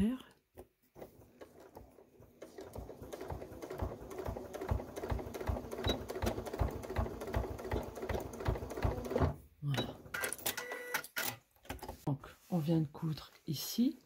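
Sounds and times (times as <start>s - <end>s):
sewing machine stitching: 0.9s - 11.0s.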